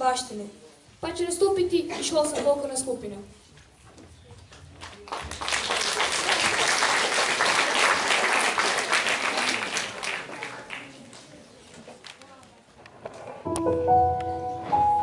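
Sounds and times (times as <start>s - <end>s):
audience applause: 4.8s - 11.0s.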